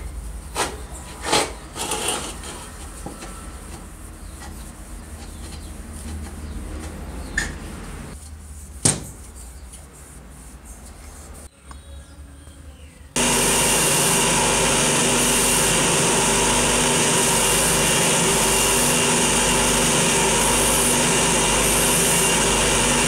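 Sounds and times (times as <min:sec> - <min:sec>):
cloth rubbing on metal: 0:00.6 - 0:07.1, 0:07.8 - 0:11.5.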